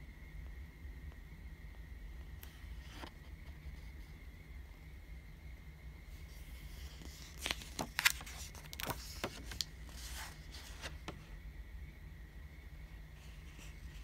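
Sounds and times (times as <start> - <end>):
book page turning: 6.4 - 11.2.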